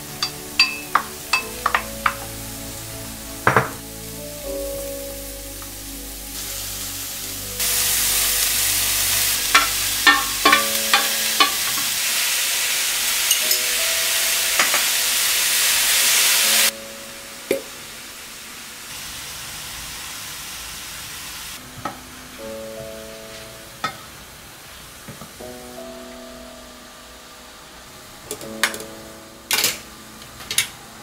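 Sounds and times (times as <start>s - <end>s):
vegetables sizzling in frying pan: 0.0s - 21.6s
spatula knocking pan: 0.6s - 2.3s, 9.6s - 11.9s.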